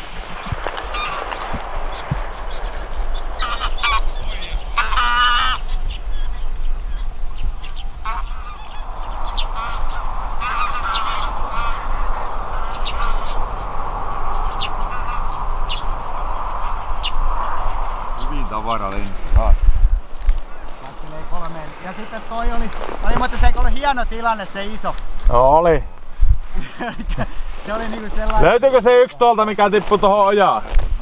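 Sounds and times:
geese honking: 0:00.0 - 0:19.0.

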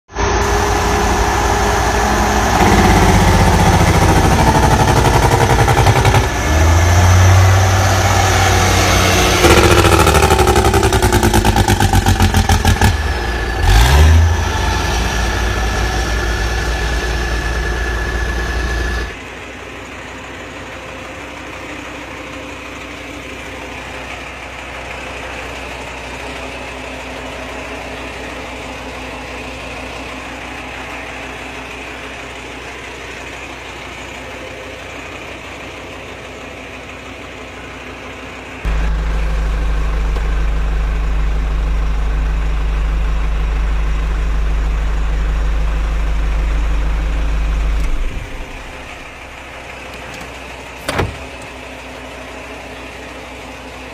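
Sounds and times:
truck engine labouring: 0:00.1 - 0:53.9.

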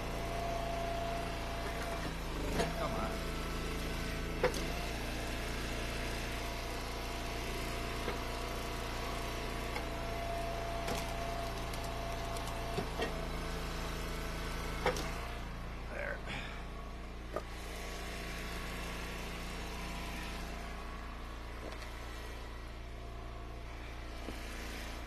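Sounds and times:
log splitter engine running: 0:00.0 - 0:25.0.

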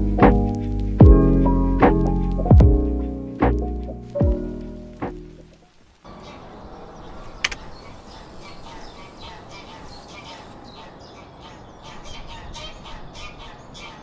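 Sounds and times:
steady low rumble: 0:00.0 - 0:05.5
birds chirping and calling: 0:00.0 - 0:14.0
sharp click: 0:07.4 - 0:07.6.

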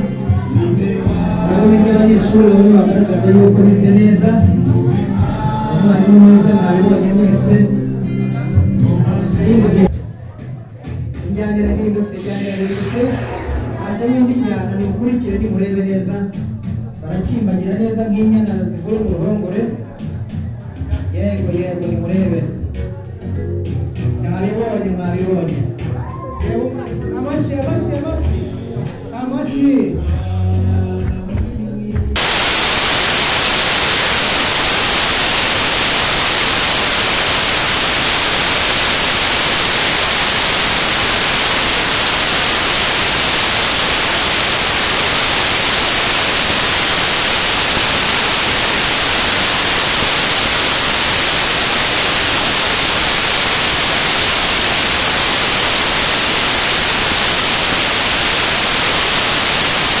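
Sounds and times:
dance music: 0:32.2 - 1:00.0
loud static hiss: 0:32.2 - 1:00.0.

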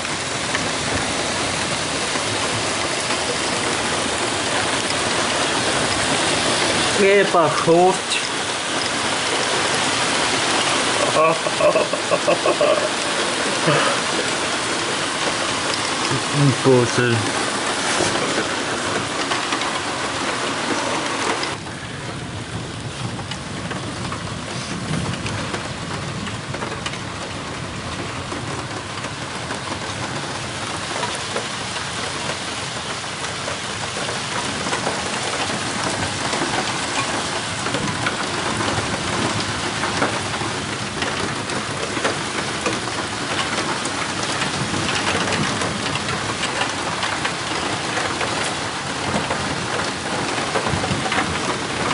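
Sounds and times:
heavy rain pouring: 0:00.0 - 0:51.9.

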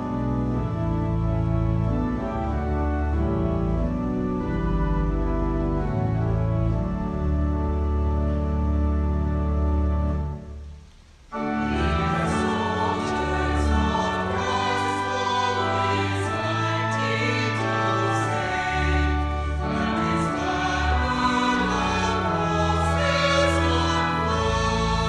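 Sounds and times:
instrumental accompaniment: 0:00.0 - 0:25.0
choir singing a hymn: 0:11.4 - 0:25.0.

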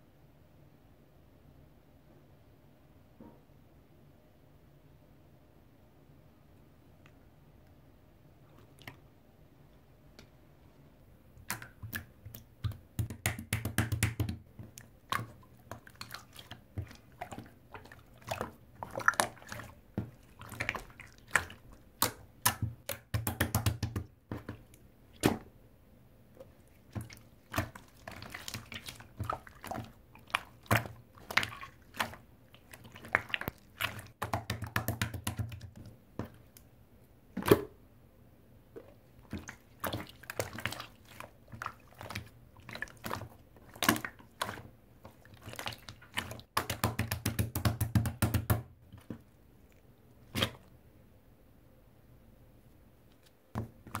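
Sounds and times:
slime squishing with sticky clicks: 0:11.3 - 0:25.6, 0:26.4 - 0:36.8.

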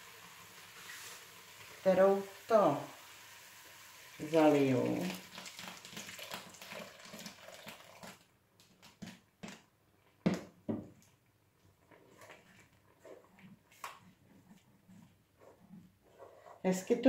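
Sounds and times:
water poured into hot pan hissing: 0:00.0 - 0:08.2.

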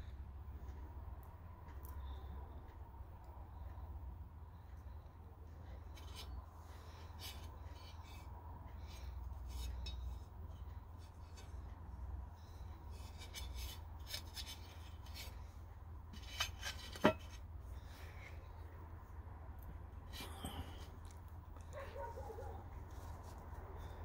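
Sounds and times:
metal parts rustling and clicking: 0:16.1 - 0:17.4.

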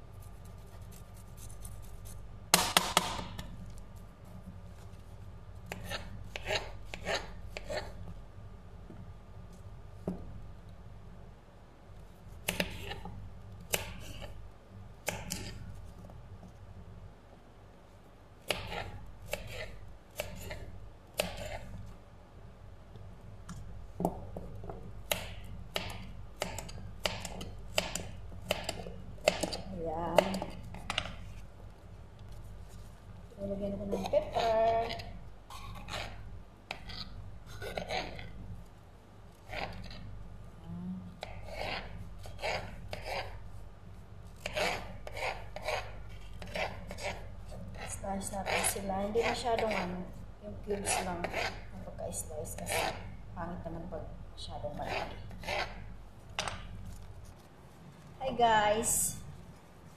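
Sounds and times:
low steady hum: 0:00.0 - 0:59.9
knife slicing carrot on board: 0:12.4 - 0:13.1, 0:13.7 - 0:14.4, 0:18.5 - 0:20.6, 0:21.2 - 0:21.7, 0:25.1 - 0:31.2, 0:44.4 - 0:50.0.

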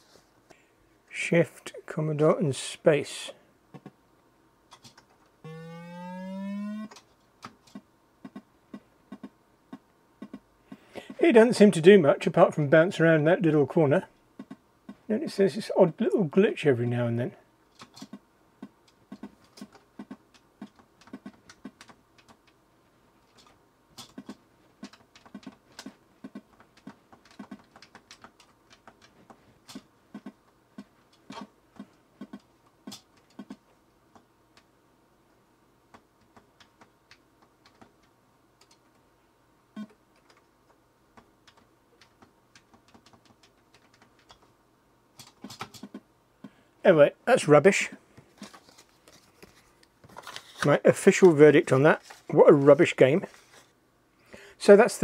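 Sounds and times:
computer keys clacking: 0:18.8 - 0:22.6, 0:23.3 - 0:30.4, 0:41.2 - 0:44.5.

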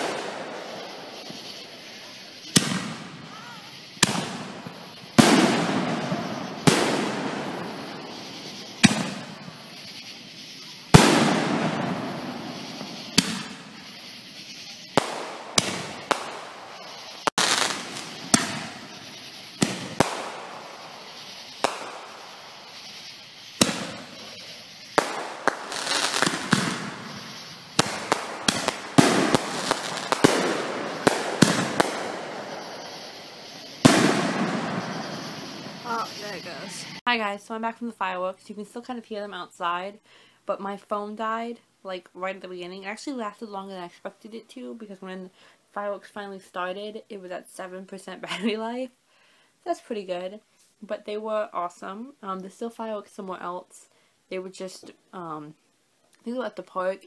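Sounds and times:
crackling firework pops: 0:00.0 - 0:37.0
firework bangs with echo: 0:00.0 - 0:37.0.

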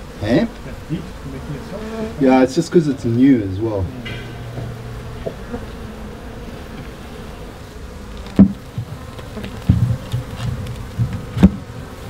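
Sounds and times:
bees buzzing: 0:00.0 - 0:12.0
sharp knocks: 0:03.8 - 0:05.6, 0:08.3 - 0:11.7.

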